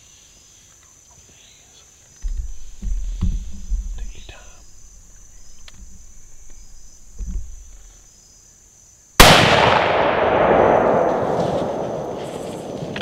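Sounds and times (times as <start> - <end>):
loud gunshot with rolling echo: 9.2 - 13.0.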